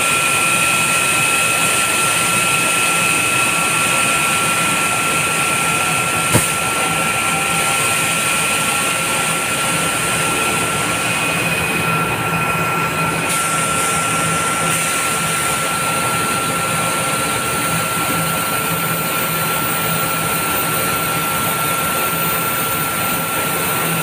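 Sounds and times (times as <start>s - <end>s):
continuous high whine: 0.0s - 24.0s
higher machine whine: 0.0s - 24.0s
loud machine noise: 0.0s - 24.0s.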